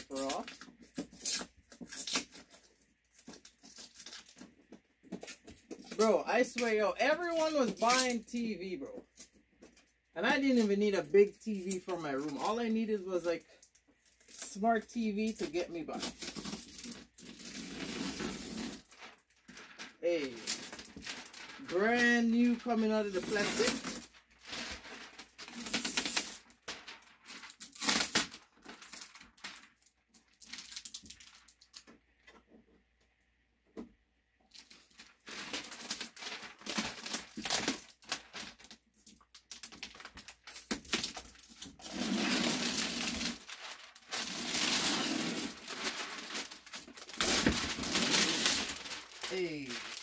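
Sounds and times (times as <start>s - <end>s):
plastic film peeling and crinkling: 0.0s - 32.0s, 34.5s - 50.0s.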